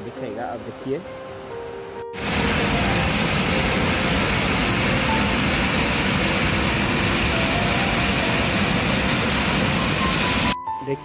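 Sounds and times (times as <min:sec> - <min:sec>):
waterfall rushing: 0:01.4 - 0:10.6.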